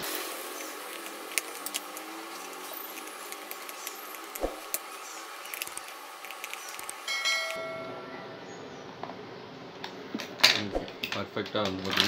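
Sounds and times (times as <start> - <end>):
sharp clicks and ticks: 2.9 - 7.6.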